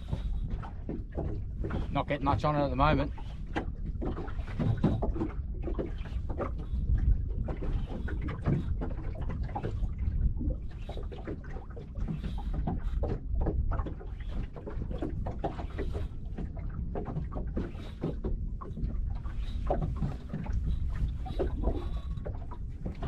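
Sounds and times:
water lapping against boat hull: 0.0 - 23.0.

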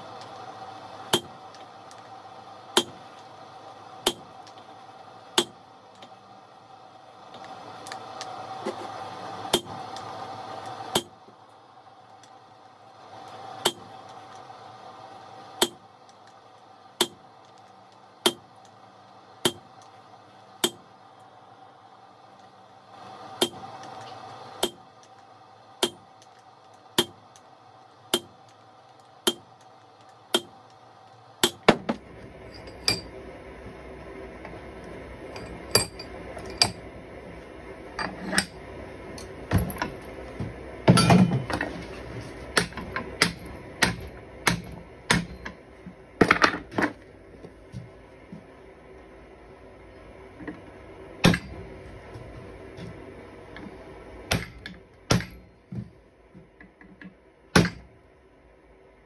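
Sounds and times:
hammer striking steel on anvil: 1.1 - 1.4, 2.8 - 3.0, 4.0 - 4.3, 5.4 - 5.6, 13.6 - 13.9, 15.6 - 15.8, 17.0 - 17.2, 18.2 - 18.5, 19.4 - 19.7, 20.6 - 20.8, 24.6 - 24.8, 25.8 - 26.1, 27.0 - 27.2, 28.1 - 28.4, 29.2 - 29.5, 30.3 - 30.6, 31.4 - 31.8, 32.5 - 33.2, 35.4 - 36.8, 38.0 - 38.6, 40.9 - 41.6, 42.5 - 45.6, 51.2 - 51.6, 54.3 - 55.5, 57.6 - 57.9.

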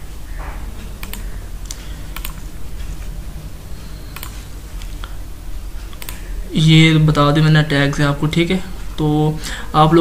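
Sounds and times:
low hum: 0.0 - 10.0
mouse and key clicks: 1.0 - 2.4, 4.1 - 5.2, 5.9 - 6.2.

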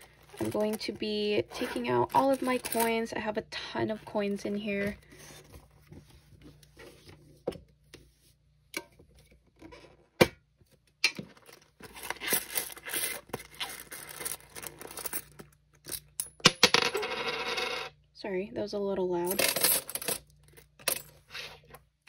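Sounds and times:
coins clinking: 2.1 - 3.0, 12.1 - 17.9, 19.3 - 21.2
plastic bag crinkling: 11.3 - 15.5.

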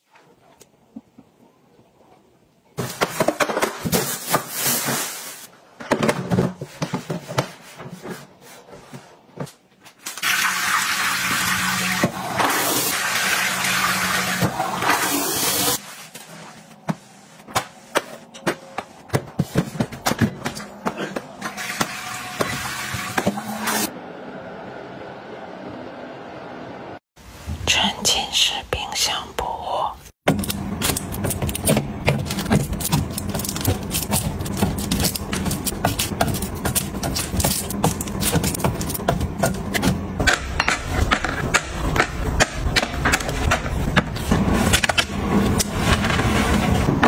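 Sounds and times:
toilet flushing: 10.2 - 15.8, 21.4 - 24.0
water at washbasin: 10.2 - 15.8, 21.4 - 23.9.

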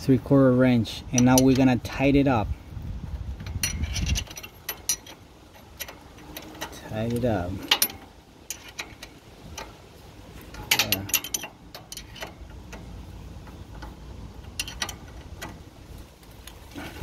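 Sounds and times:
wrench clicking on bolt: 1.1 - 1.7, 3.4 - 9.8, 10.4 - 15.6.

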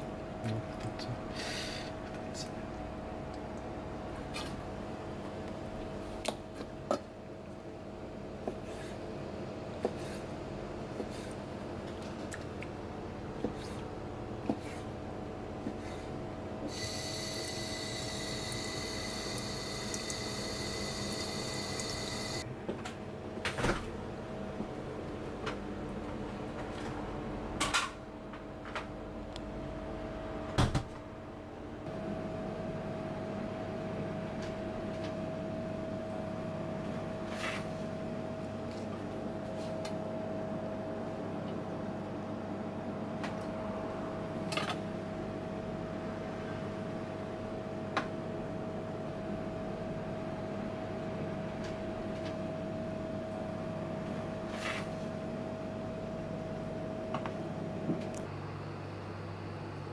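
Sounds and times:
kitchen machine hum: 13.0 - 22.7.

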